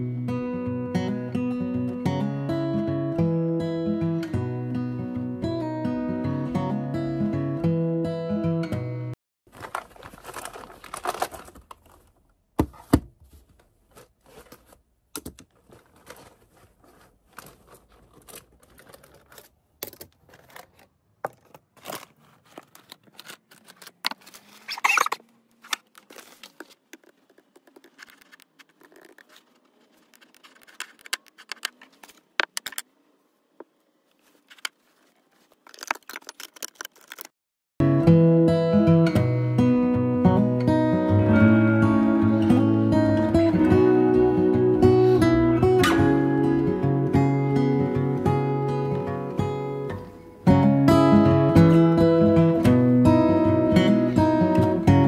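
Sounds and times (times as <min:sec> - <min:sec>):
pencil case and pens handled: 0:09.5 - 0:32.8, 0:34.2 - 0:37.3
paper rustling: 0:09.5 - 0:32.9, 0:34.0 - 0:37.3.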